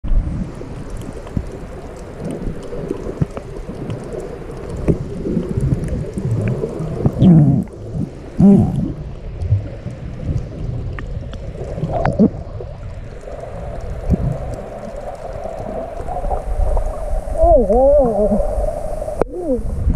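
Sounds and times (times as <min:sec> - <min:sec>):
underwater rumble: 0:00.0 - 0:19.9
faint ticks: 0:00.8 - 0:07.8.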